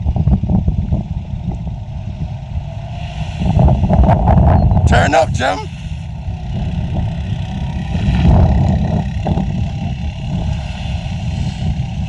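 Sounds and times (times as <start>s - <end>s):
quad engine revving: 4.9s - 12.0s.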